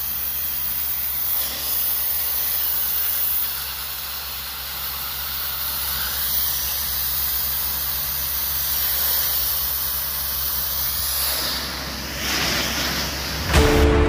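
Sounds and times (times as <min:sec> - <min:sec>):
pressure washer jet hissing: 0:01.2 - 0:13.6
low hum: 0:13.4 - 0:14.0.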